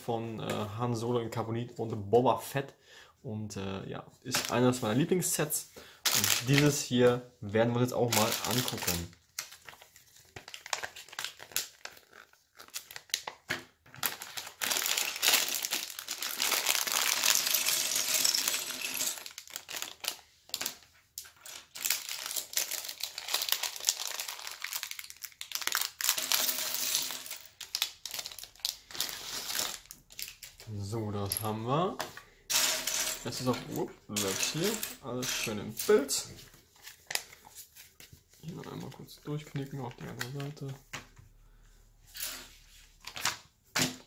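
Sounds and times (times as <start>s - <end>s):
plastic bags crinkling: 6.1s - 6.9s, 8.0s - 31.6s, 32.7s - 40.7s.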